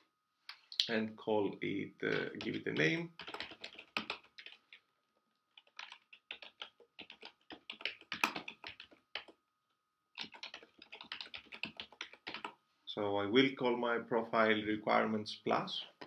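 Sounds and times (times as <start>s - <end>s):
keyboard typing clicks: 2.1s - 4.8s, 5.5s - 9.4s, 10.2s - 12.6s.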